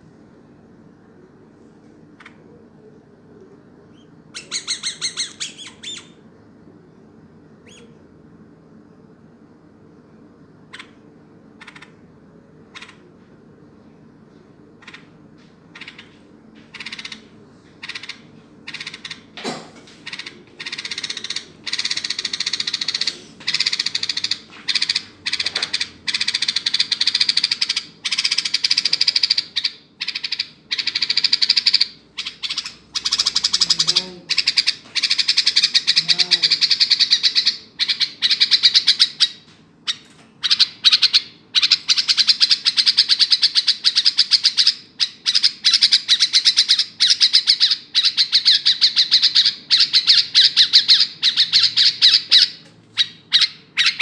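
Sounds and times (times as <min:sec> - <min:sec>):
bird chirping rapidly: 0:03.9 - 0:06.2, 0:07.6 - 0:07.9, 0:16.7 - 0:19.3, 0:20.1 - 0:54.0.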